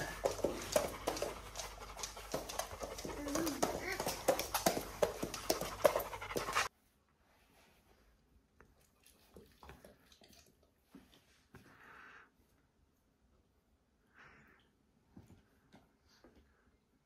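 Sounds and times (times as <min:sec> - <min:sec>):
claws clicking on wooden floor: 0:00.0 - 0:06.7
dog panting: 0:00.0 - 0:06.7.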